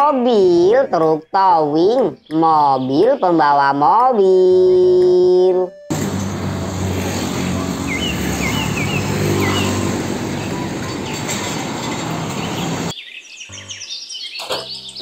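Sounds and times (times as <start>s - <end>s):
diesel truck engine: 5.9s - 12.9s
road traffic: 5.9s - 13.0s
bird chirps: 7.9s - 11.2s, 12.4s - 15.0s.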